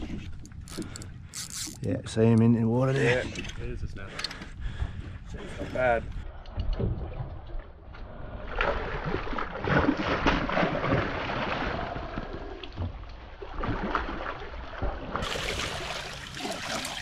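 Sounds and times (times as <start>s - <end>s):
fish thrashing in water: 13.4s - 17.0s.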